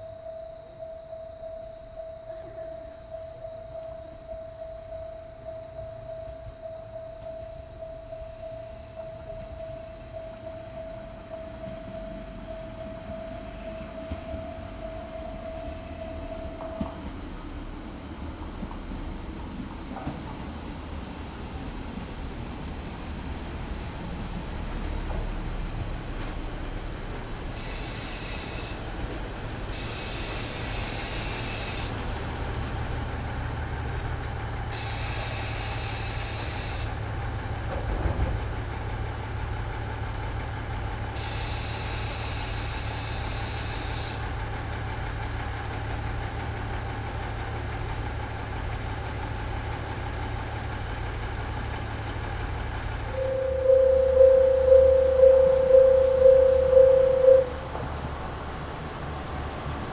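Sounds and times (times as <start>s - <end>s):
pulsing bell-like warning tone: 0.0s - 16.8s, 53.1s - 58.5s
diesel engine idling: 38.4s - 59.9s
high-pitched trill: 53.2s - 57.9s.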